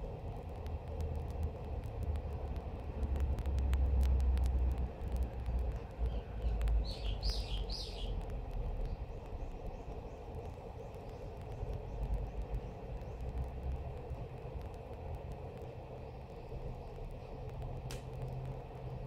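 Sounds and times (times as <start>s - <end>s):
steady low rumble: 0.0s - 19.0s
bird chirping: 6.0s - 8.2s.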